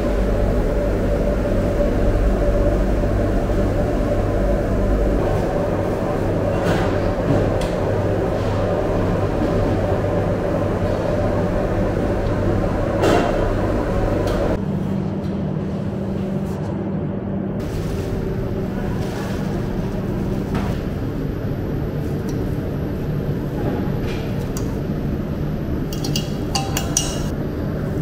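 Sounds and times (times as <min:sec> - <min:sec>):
kitchen machinery humming: 0:00.0 - 0:16.6, 0:17.6 - 0:28.0
utensils clinking: 0:25.9 - 0:27.3.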